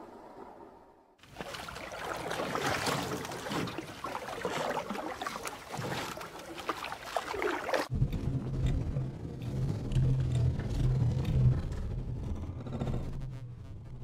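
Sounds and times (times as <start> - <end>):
water lapping against boat hull: 1.2 - 8.8
steady low rumble: 7.9 - 14.0.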